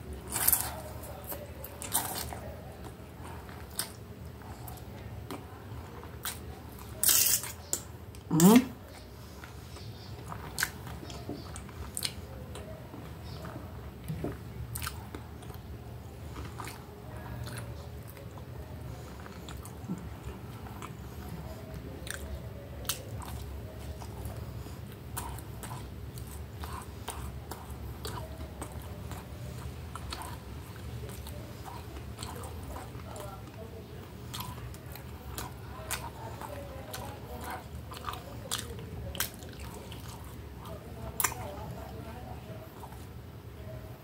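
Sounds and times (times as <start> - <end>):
person chewing and biting food: 6.1 - 15.6, 22.0 - 41.5.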